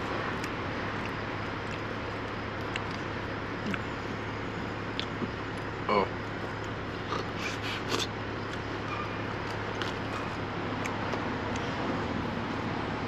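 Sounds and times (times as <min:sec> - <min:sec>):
steady low hum: 0:00.0 - 0:13.0
person chewing: 0:02.6 - 0:03.9, 0:06.5 - 0:08.8.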